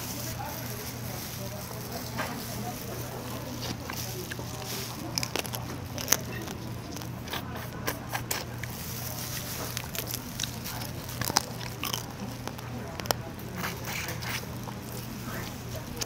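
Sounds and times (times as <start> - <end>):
chewing: 0.2 - 16.0
wet squishing of crab: 3.0 - 16.0
crab shell cracking: 3.6 - 16.0.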